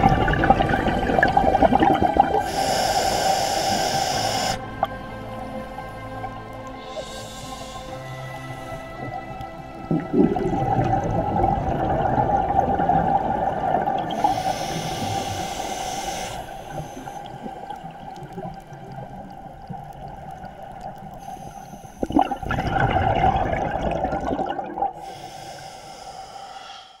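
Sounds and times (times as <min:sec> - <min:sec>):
exhaled bubbles rumbling: 0:00.0 - 0:02.6, 0:08.8 - 0:14.4, 0:17.1 - 0:21.2, 0:22.0 - 0:25.0
regulator hissing inhalation: 0:02.2 - 0:04.9, 0:06.8 - 0:09.3, 0:14.0 - 0:17.8, 0:21.1 - 0:22.4, 0:25.0 - 0:27.0.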